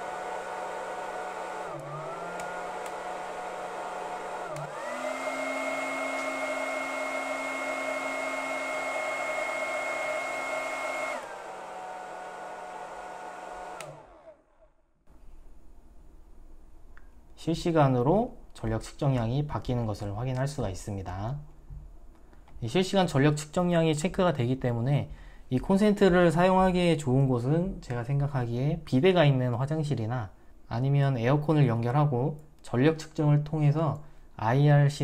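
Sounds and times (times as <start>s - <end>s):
hair dryer motor whine: 0.0s - 14.7s.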